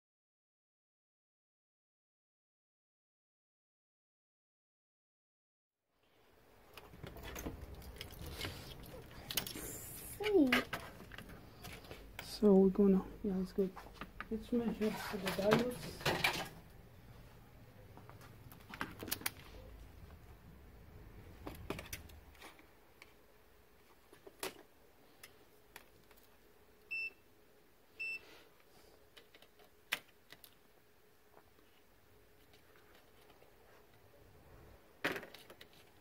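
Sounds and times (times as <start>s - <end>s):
multimeter beeps: 26.9s - 27.2s, 28.0s - 28.2s.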